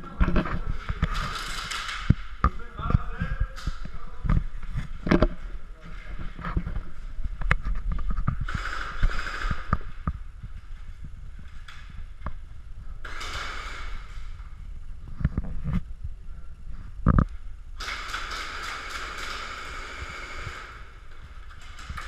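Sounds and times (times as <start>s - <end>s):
airsoft gun rattling bursts: 1.0s - 2.4s, 8.1s - 10.0s, 13.0s - 14.2s, 17.8s - 22.0s.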